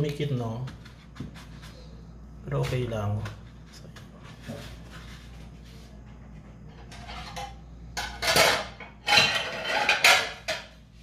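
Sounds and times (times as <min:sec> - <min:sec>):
crockery clattering: 0:06.8 - 0:10.8.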